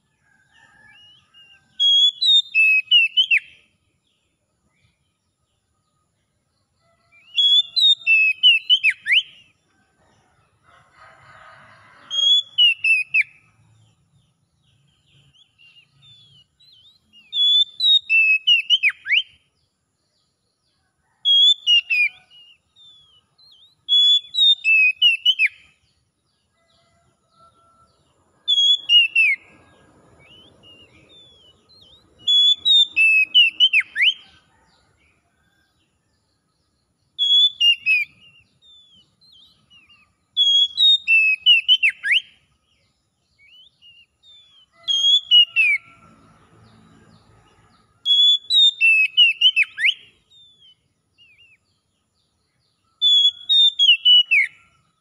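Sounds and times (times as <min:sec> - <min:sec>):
bird whistled song phrases: 0:00.9 - 0:03.6, 0:07.2 - 0:09.5, 0:12.2 - 0:13.4, 0:15.3 - 0:19.4, 0:21.3 - 0:25.6, 0:30.2 - 0:34.2, 0:37.2 - 0:42.3, 0:48.1 - 0:51.6, 0:53.0 - 0:54.6.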